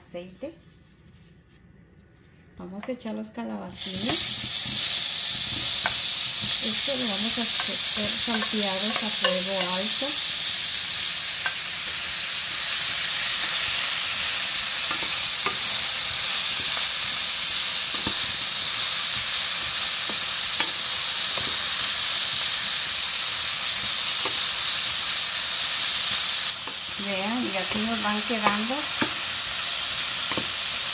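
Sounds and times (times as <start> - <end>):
vegetables sizzling in oil: 3.7 - 30.9
wooden spatula tapping: 7.5 - 9.8, 27.6 - 29.2.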